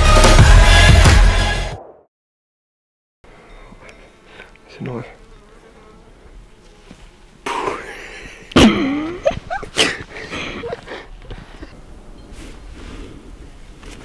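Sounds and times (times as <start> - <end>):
man laughing: 7.5 - 11.7.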